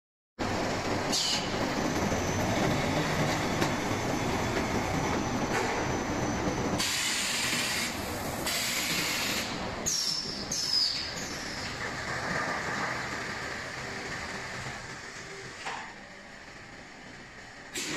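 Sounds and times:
packing machinery running: 0.4s - 17.9s
loud hiss: 6.8s - 10.2s.

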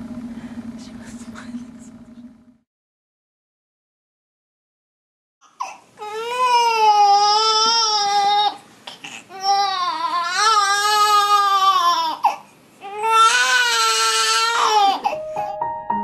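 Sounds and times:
baby crying: 5.4s - 15.6s
soft piano music: 15.0s - 16.0s.

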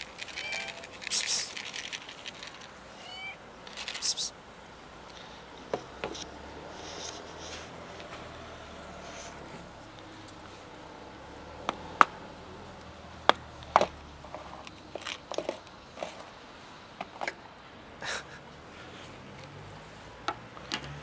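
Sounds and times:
dry kibble rattling: 0.0s - 4.3s, 13.8s - 16.4s.

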